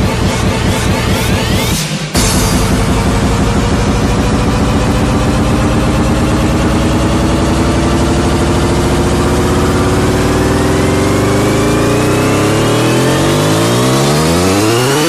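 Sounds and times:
vehicle engine idling: 0:02.2 - 0:12.5.

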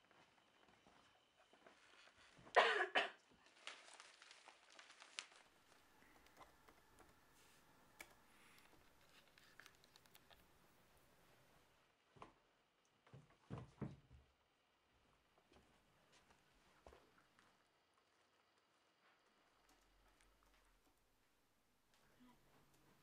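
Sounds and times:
person coughing: 0:02.5 - 0:03.2.

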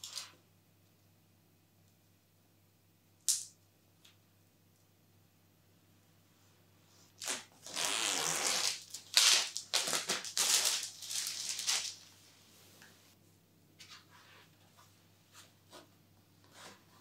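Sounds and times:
plastic film peeling and crinkling: 0:07.2 - 0:12.1.

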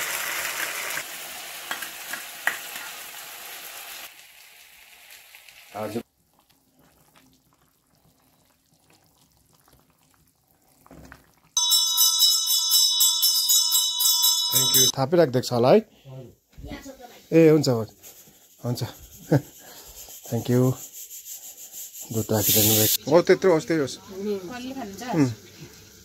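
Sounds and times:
food sizzling in a wok: 0:00.0 - 0:06.1, 0:17.0 - 0:26.0
hand bell ringing: 0:11.6 - 0:14.9.

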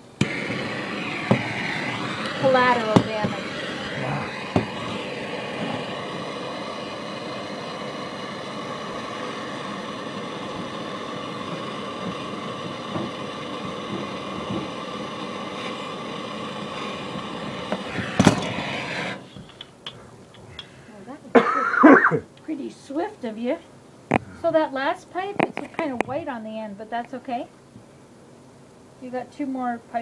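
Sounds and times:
gas torch flame hissing: 0:00.0 - 0:22.2.

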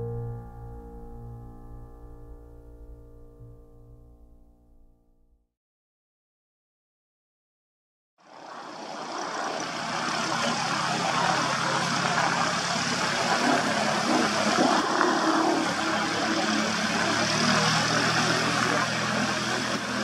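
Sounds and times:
aircraft piston engine running: 0:08.5 - 0:20.0.

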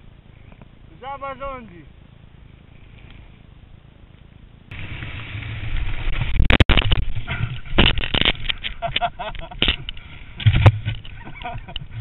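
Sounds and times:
crackling and scraping on ground: 0:01.6 - 0:12.0
dirt bike engine: 0:04.7 - 0:12.0.

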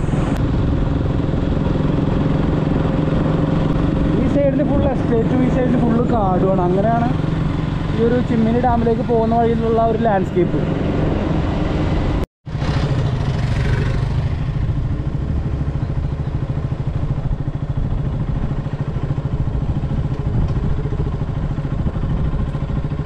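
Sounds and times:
motorcycle engine running: 0:00.0 - 0:23.0.

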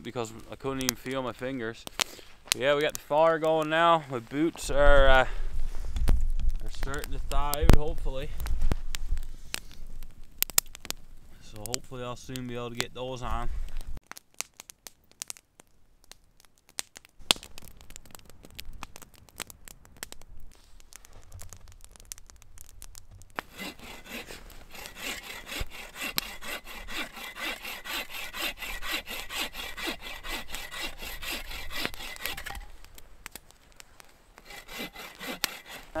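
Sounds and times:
campfire crackling and popping: 0:00.0 - 0:36.0
hand saw rasping through wood: 0:23.4 - 0:32.7, 0:34.4 - 0:36.0.

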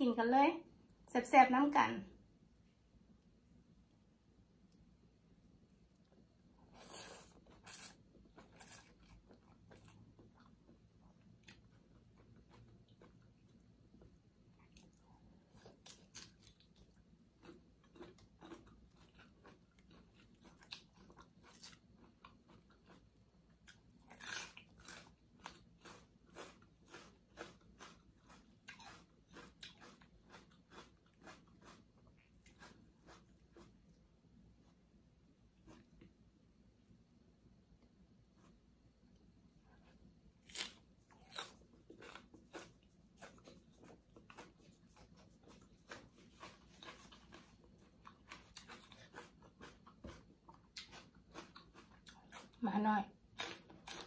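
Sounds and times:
crunchy chewing: 0:06.7 - 0:34.0, 0:39.8 - 0:52.6, 0:53.3 - 0:54.0.

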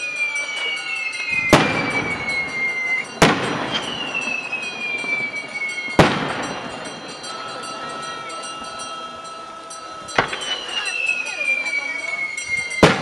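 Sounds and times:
rocket whistles falling in pitch: 0:00.4 - 0:06.8, 0:10.2 - 0:13.0
rockets bursting bangs: 0:01.3 - 0:07.2, 0:12.8 - 0:13.0.

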